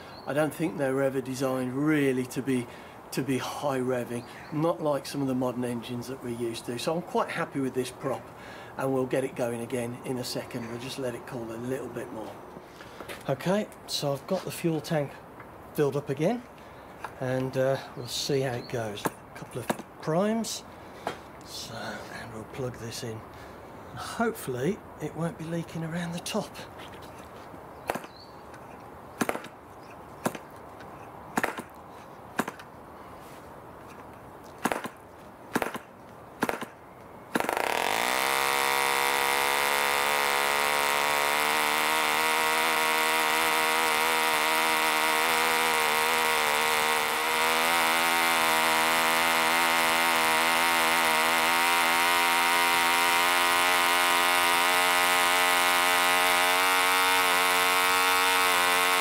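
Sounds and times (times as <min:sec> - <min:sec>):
model engine running steadily: 0:37.4 - 0:59.0.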